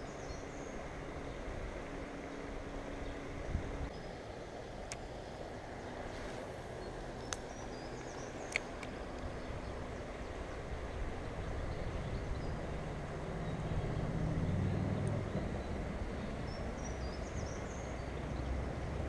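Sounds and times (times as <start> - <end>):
distant traffic rumble: 0.0 - 19.0
low engine drone: 0.0 - 19.0
sharp clicks: 8.4 - 9.3.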